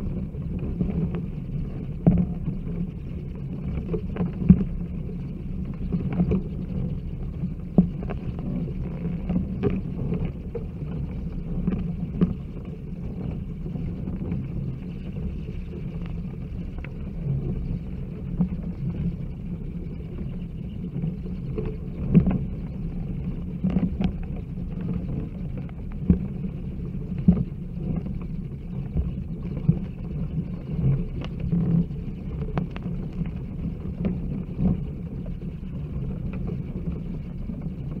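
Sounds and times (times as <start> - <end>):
low rumble: 0.0 - 38.0.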